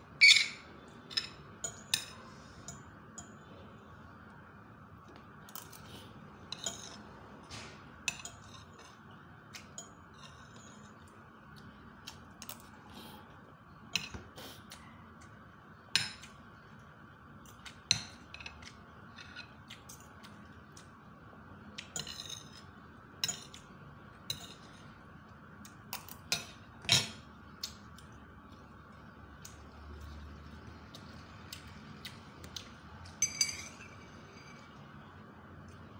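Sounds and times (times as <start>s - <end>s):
cutlery clinking on a plate: 33.1s - 34.6s.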